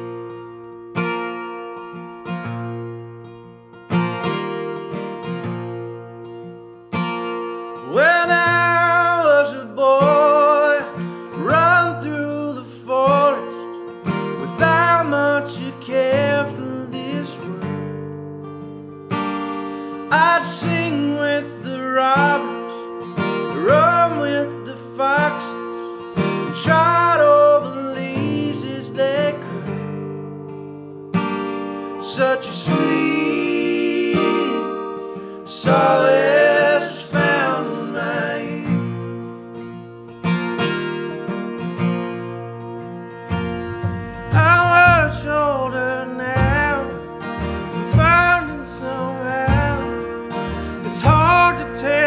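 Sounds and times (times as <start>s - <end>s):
strummed acoustic guitar: 0.0s - 52.0s
man singing: 7.8s - 13.6s, 14.3s - 18.0s, 20.1s - 22.7s, 23.4s - 25.7s, 26.4s - 30.0s, 32.0s - 39.0s, 44.1s - 47.2s, 47.8s - 50.2s, 50.8s - 52.0s
deep bass notes: 43.3s - 51.8s.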